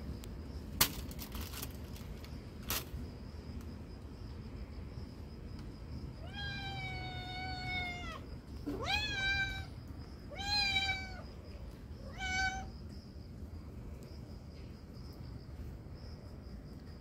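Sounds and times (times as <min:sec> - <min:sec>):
cat meowing: 0:06.2 - 0:09.7, 0:10.3 - 0:11.3, 0:12.1 - 0:12.7.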